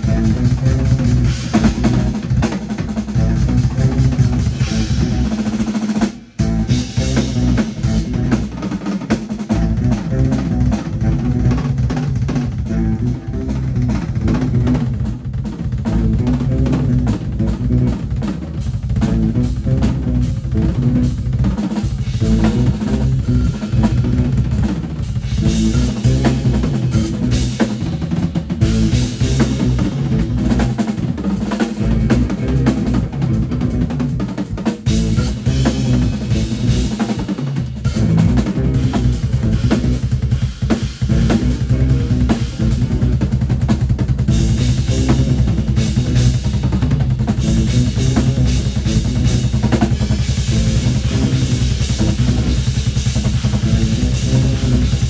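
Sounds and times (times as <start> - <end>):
low bass line: 0.0 - 5.4, 6.4 - 8.5, 9.4 - 34.2, 34.8 - 55.0
live band music: 0.0 - 55.0
loud busy drumming: 0.0 - 55.0.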